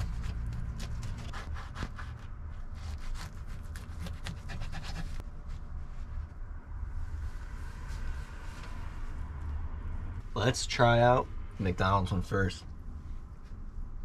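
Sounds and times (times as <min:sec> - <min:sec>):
knife sawing through buns: 0:00.0 - 0:05.2.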